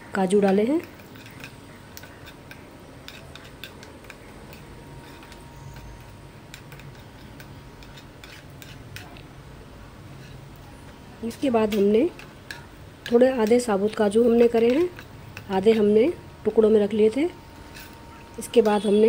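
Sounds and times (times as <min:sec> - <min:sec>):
nuts crackling in hot fat: 0:00.1 - 0:09.4, 0:10.5 - 0:16.1.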